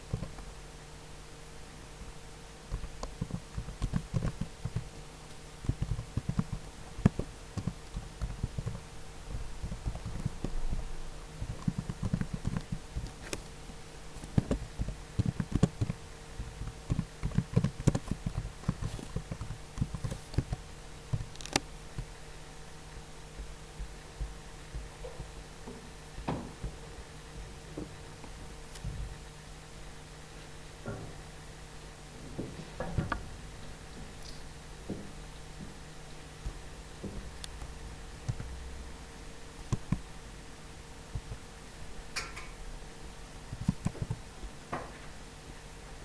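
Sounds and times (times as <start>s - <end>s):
computer keyboard typing: 2.7s - 4.9s, 5.6s - 8.9s, 9.6s - 10.5s, 11.4s - 13.5s, 14.2s - 22.1s, 38.2s - 38.5s, 39.7s - 40.0s, 43.5s - 44.2s.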